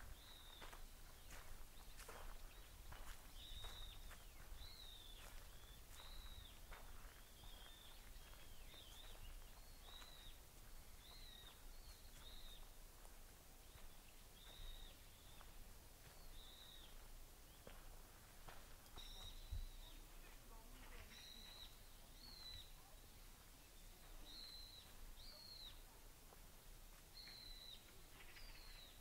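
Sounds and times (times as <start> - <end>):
faint bird calls: 0.0 - 12.7, 19.0 - 26.0, 27.1 - 29.0
outdoor ambience: 0.0 - 29.0.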